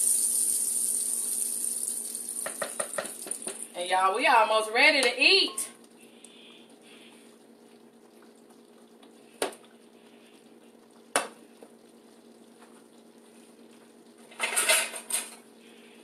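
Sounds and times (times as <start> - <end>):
oil sizzling in a skillet: 0.0 - 3.9
metal kitchen utensils clattering: 14.3 - 15.4.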